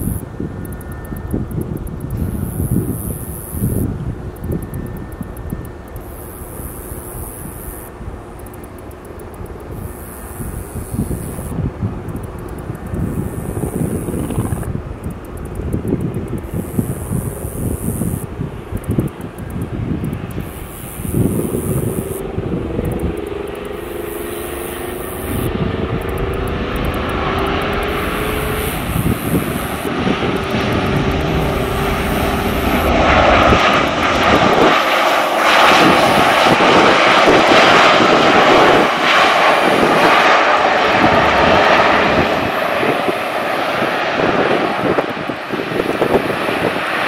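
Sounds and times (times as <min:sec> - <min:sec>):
jet engine whine: 0:00.0 - 0:47.0
steady jet noise: 0:00.0 - 0:47.0.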